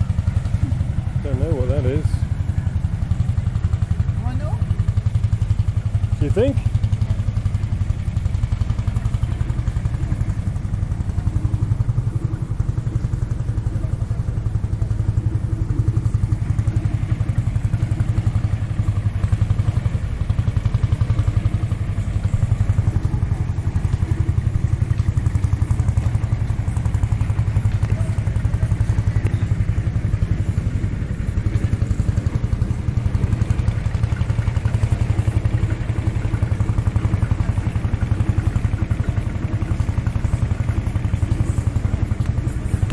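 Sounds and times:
tractor engine running: 0:00.0 - 0:42.9.

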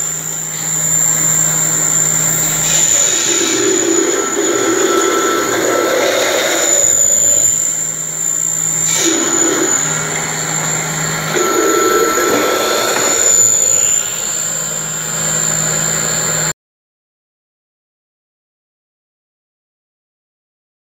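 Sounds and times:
grinding mill whine and hum: 0:00.0 - 0:16.5
grinding noise: 0:00.0 - 0:16.5.

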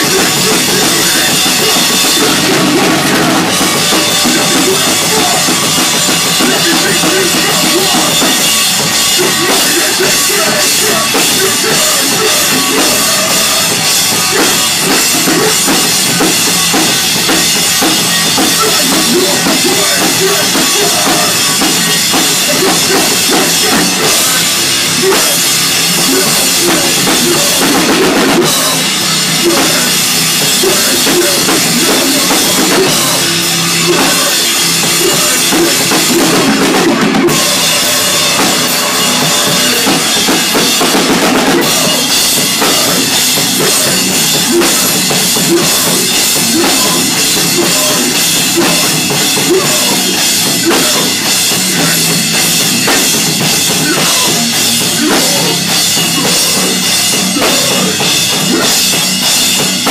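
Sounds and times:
bass guitar: 0:00.0 - 0:59.9
drum kit: 0:00.0 - 0:59.9
live hardcore band playing: 0:00.0 - 0:59.9.

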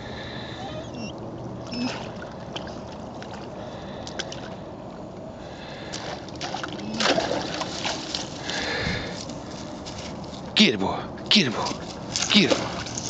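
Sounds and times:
dog splashing in water: 0:05.8 - 0:10.2, 0:11.6 - 0:13.0
loud splash: 0:06.0 - 0:08.7, 0:12.2 - 0:13.0.

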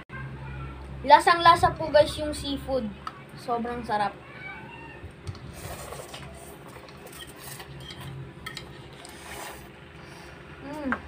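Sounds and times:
slurping noodles: 0:05.5 - 0:07.8, 0:08.8 - 0:09.8.

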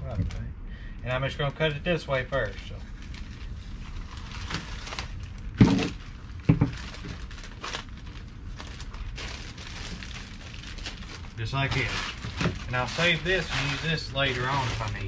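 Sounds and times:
plastic crinkling: 0:02.3 - 0:15.0
scissors cutting plastic bag: 0:09.2 - 0:15.0.

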